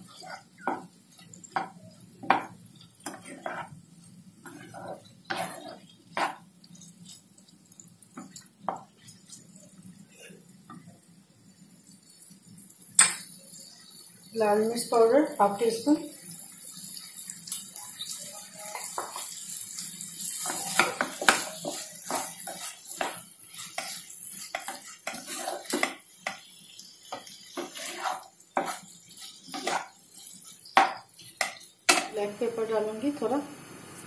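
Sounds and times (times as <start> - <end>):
spatula scraping frying pan: 0.0 - 7.3, 17.0 - 32.1.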